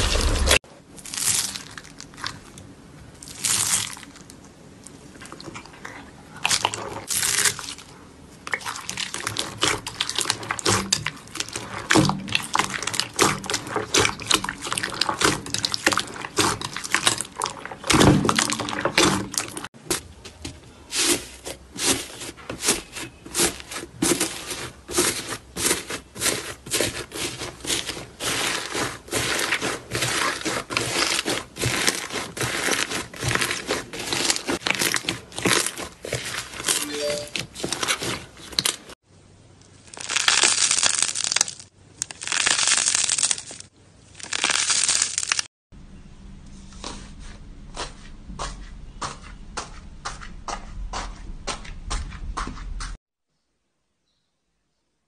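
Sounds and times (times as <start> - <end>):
slime crackling and squishing: 0.0 - 20.0, 20.8 - 39.0, 39.7 - 45.5.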